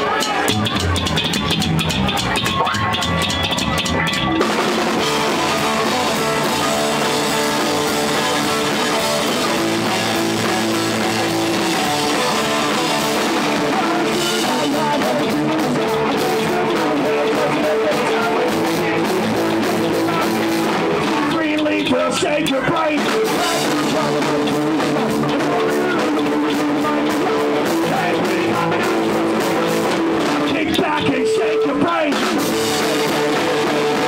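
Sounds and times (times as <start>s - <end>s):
drum kit: 0.0s - 34.0s
electric guitar: 0.0s - 34.0s
double bass: 0.5s - 14.6s.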